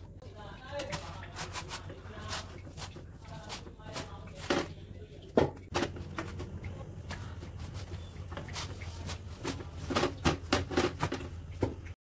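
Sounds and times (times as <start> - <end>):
steady low hum: 0.0 - 12.0
rolling pin and dough on board: 5.4 - 11.9.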